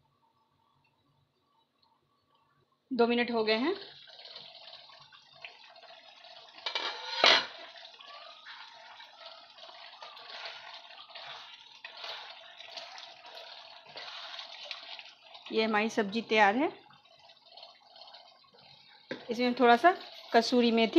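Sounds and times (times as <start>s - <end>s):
curry simmering and bubbling: 0.0s - 20.9s
lid clattering: 6.6s - 7.6s
wooden spatula stirring: 6.7s - 15.5s.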